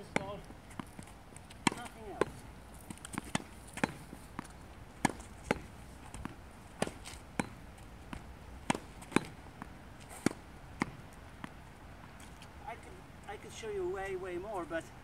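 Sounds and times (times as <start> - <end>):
ball bouncing on hard court: 0.0 - 11.6
racket hitting tennis ball: 0.0 - 11.6.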